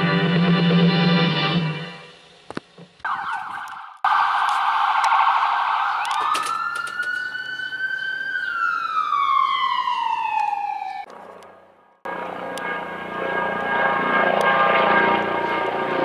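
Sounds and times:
ambulance siren: 0:03.0 - 0:11.4.

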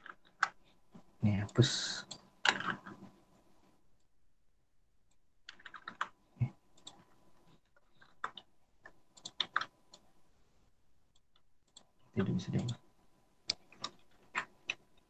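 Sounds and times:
computer keyboard clicks: 0:05.4 - 0:06.2, 0:08.0 - 0:10.0, 0:13.5 - 0:15.0.

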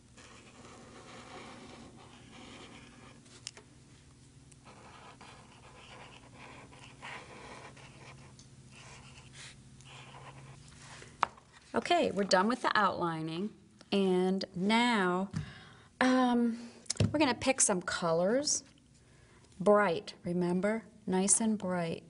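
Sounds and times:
pen scratching on paper: 0:00.2 - 0:03.2, 0:04.6 - 0:10.6.

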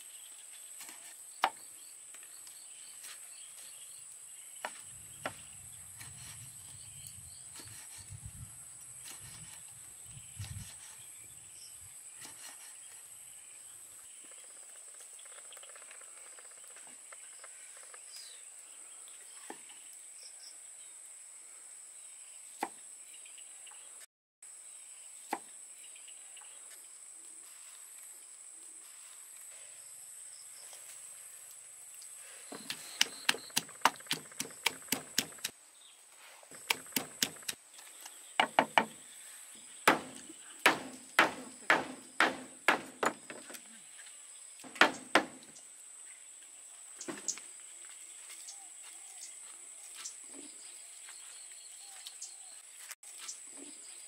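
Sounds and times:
knife chopping on wood: 0:32.6 - 0:35.5, 0:36.5 - 0:37.6, 0:39.9 - 0:43.6, 0:44.6 - 0:45.5.

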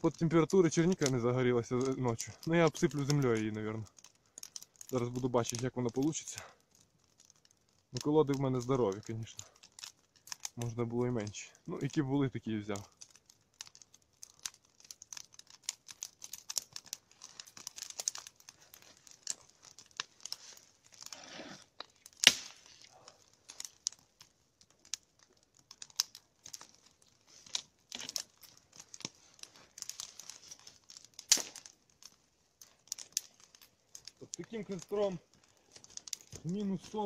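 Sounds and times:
log fire crackling and popping: 0:00.0 - 0:37.0.

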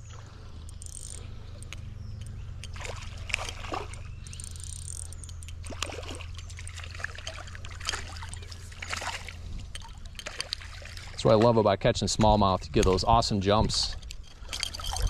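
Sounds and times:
fish splashing in water: 0:02.7 - 0:04.1, 0:05.6 - 0:11.6.

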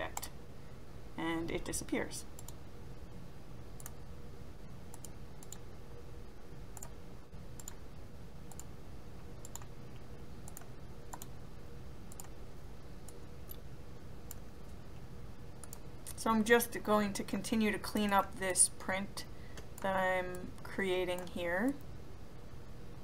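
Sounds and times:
steady low hum: 0:00.0 - 0:23.0
computer mouse clicking: 0:02.4 - 0:02.6, 0:03.8 - 0:04.0, 0:04.9 - 0:05.6, 0:06.7 - 0:07.0, 0:07.6 - 0:07.8, 0:08.5 - 0:08.7, 0:09.4 - 0:11.3, 0:12.1 - 0:12.4, 0:15.6 - 0:16.2.

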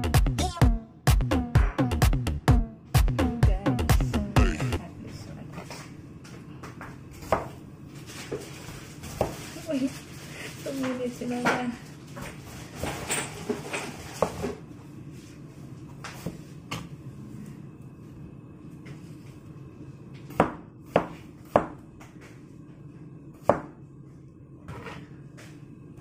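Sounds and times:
cleaver chopping on cutting board: 0:20.3 - 0:21.8, 0:23.4 - 0:23.7.

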